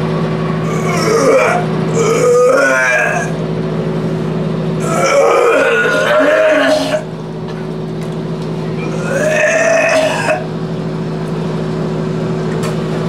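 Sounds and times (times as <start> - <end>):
steady low hum: 0.0 - 13.0
man retching: 0.7 - 3.4, 4.8 - 7.1, 8.8 - 10.5.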